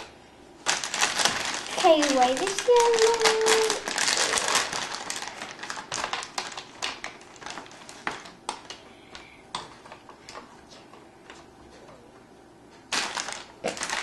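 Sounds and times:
plastic bag crinkling: 0.6 - 9.2, 12.9 - 14.0.

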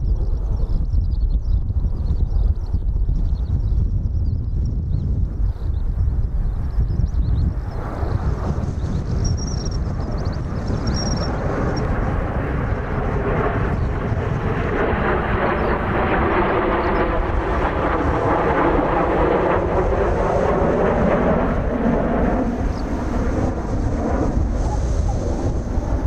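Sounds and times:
jet engines flying overhead: 0.0 - 26.0
wind rumble on microphone: 0.0 - 26.0.

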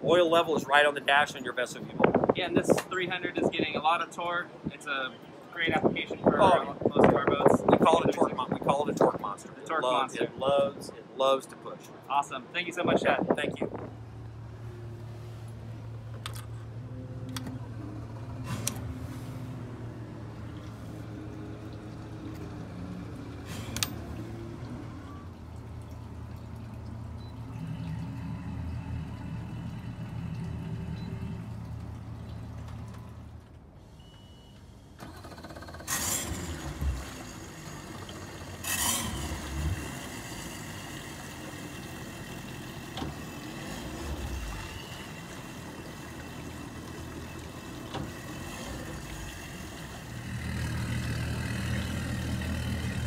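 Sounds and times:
outboard engines idling: 13.7 - 34.0, 34.8 - 53.0
sharp loud engine bursts: 34.7 - 45.3.

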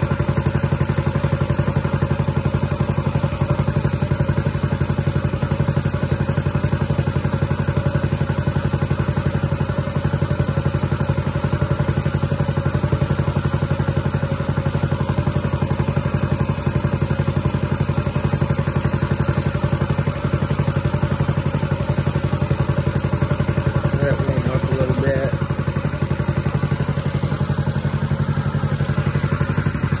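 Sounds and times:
small engine running steadily: 0.0 - 30.0.

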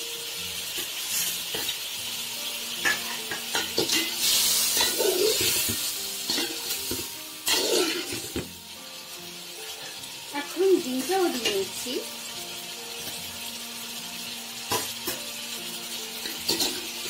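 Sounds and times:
food sizzling in a metal pan: 0.0 - 17.0
metal spoon scraping a pan: 2.8 - 8.4, 16.1 - 17.0.

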